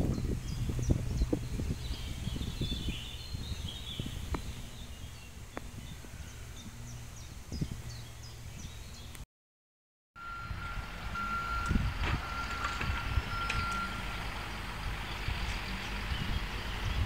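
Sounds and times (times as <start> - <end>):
reversing alarm beeping: 10.2 - 14.2.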